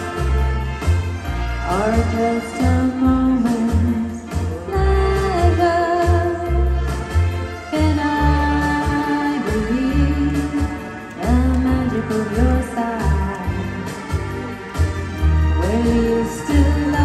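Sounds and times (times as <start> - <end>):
backing track with bass beat: 0.0 - 17.0
woman singing into microphone: 1.6 - 6.8, 7.7 - 14.0, 15.6 - 17.0.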